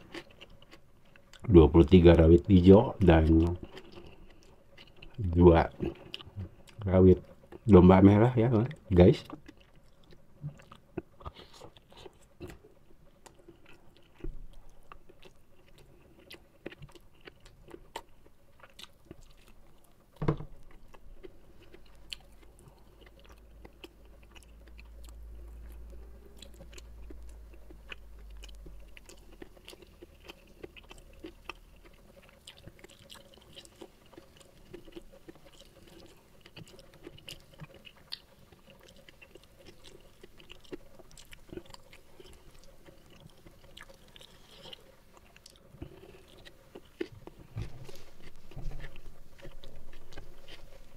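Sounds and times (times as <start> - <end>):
person chewing food: 0.0 - 7.7, 8.7 - 50.9.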